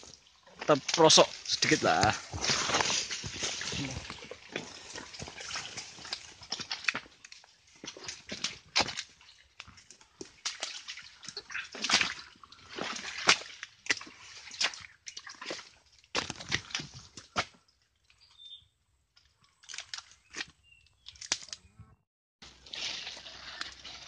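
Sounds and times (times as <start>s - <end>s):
leaves and twigs rustling: 0.0s - 13.6s
footsteps squelching in mud: 0.2s - 17.8s, 19.2s - 21.6s.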